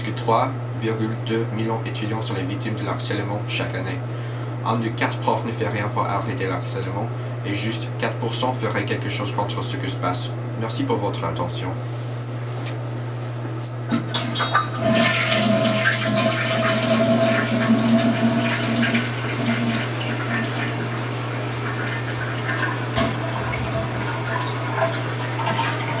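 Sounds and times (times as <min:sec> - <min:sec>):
toilet flushing: 0:13.9 - 0:26.0
running water: 0:14.1 - 0:26.0.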